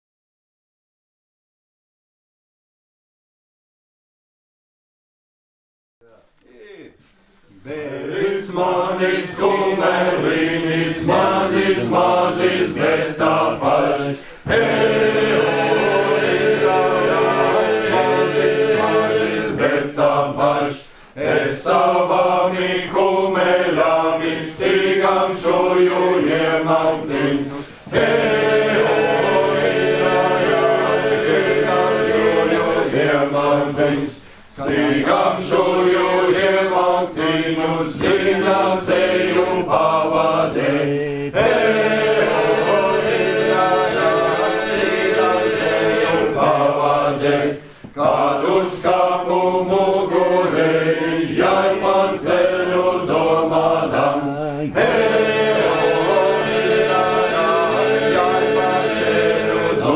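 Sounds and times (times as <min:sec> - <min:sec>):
men singing a cappella: 0:07.5 - 0:59.9
low vocal drone: 0:07.6 - 0:20.2.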